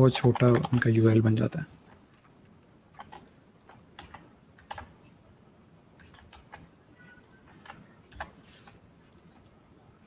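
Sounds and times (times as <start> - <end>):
keyboard typing: 0.0 - 1.1, 2.1 - 5.1, 6.0 - 9.6.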